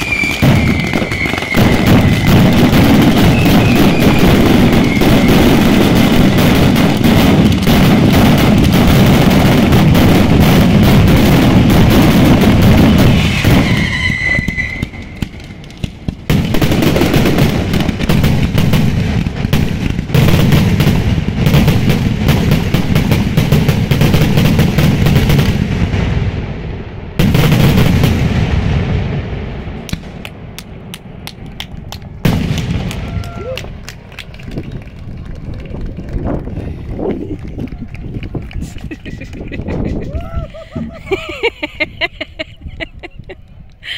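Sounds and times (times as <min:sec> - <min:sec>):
firecracker bangs and booms: 0:00.0 - 0:41.9.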